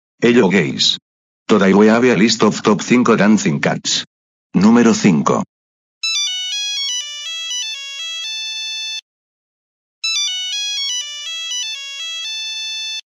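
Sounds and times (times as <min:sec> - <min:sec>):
electronic ringtone tune: 0:06.0 - 0:09.0, 0:10.0 - 0:13.0.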